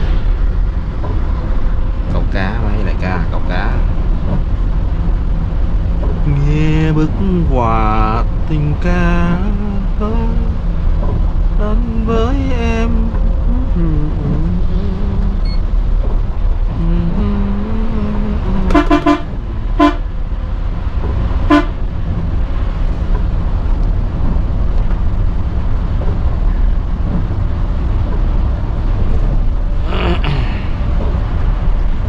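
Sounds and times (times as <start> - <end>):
engine rumble and road noise: 0.0 - 32.0
horn tooting in short blasts: 18.7 - 20.0, 21.5 - 21.8.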